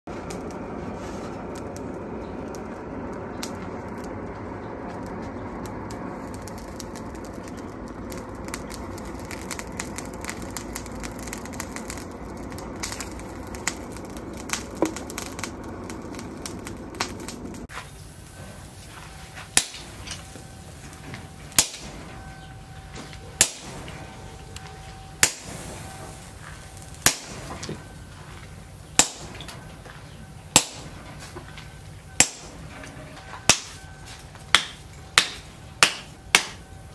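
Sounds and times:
forge fire rushing: 0.1 - 36.9
small crackles and clinks: 0.2 - 17.7, 18.8 - 36.9
hammer ringing on chisel: 32.2 - 36.9.

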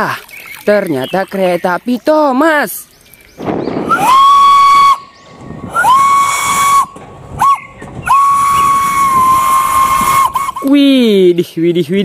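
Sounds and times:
steam locomotive whistle: 3.9 - 5.1, 5.7 - 10.7.

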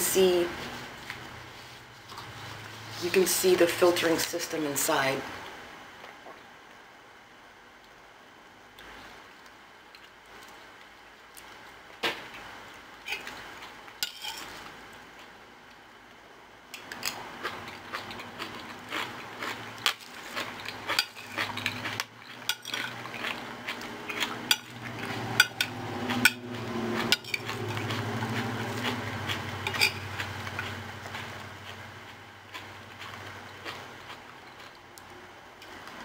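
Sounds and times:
low steady hum: 0.0 - 36.0
fork clinking and scraping metal: 14.0 - 14.6, 20.5 - 23.4, 24.1 - 26.4, 27.0 - 28.0, 29.6 - 30.1.

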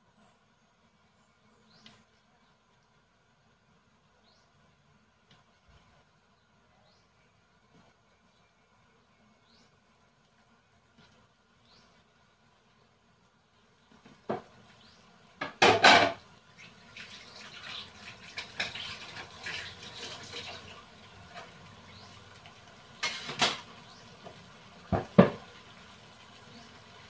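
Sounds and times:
water boiling in a pot: 0.0 - 27.0
kitchenware clanking: 15.4 - 16.2.

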